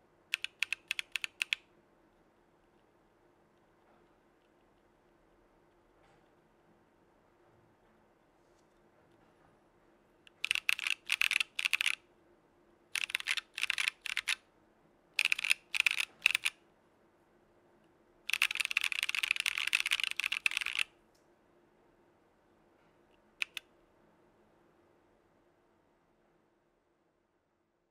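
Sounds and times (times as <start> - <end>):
typing on a mechanical keyboard: 0.3 - 1.6, 10.3 - 12.0, 12.9 - 14.4, 15.2 - 16.6, 18.3 - 20.9, 23.4 - 23.7.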